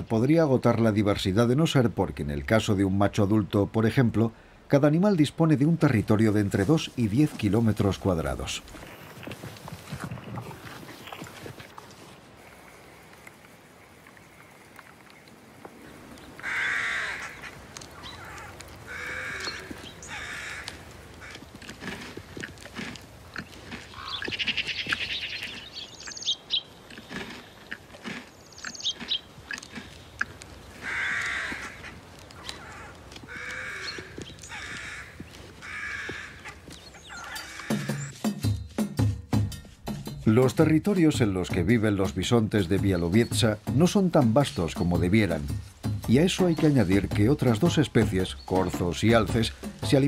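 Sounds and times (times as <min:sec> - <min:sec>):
faint clicks: 0:11.0 - 0:16.5
faint snapping and rustling: 0:13.1 - 0:38.1
crow cawing: 0:16.4 - 0:21.5, 0:23.9 - 0:25.4, 0:30.8 - 0:38.1.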